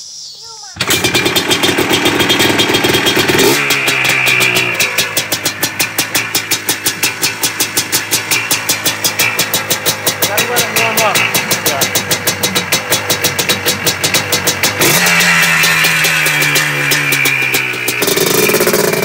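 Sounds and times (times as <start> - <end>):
two-stroke engine revving and idling: 0.8 - 19.0.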